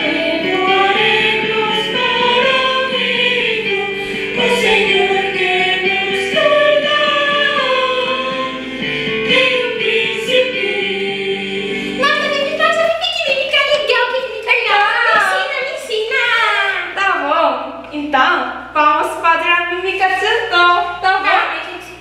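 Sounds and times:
choir singing with music: 0:00.0 - 0:15.8.

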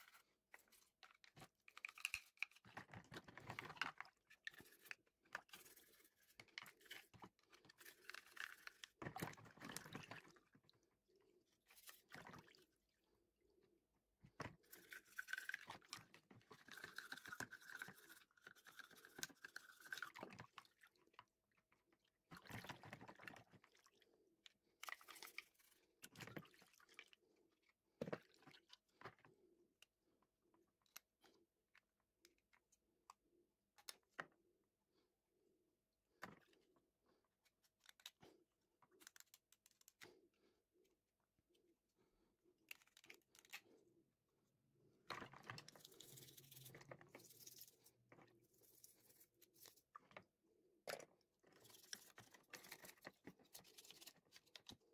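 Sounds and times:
toothbrush scrubbing plastic: 0:00.0 - 0:10.4, 0:14.4 - 0:20.8, 0:45.0 - 0:50.4, 0:51.0 - 0:54.9.

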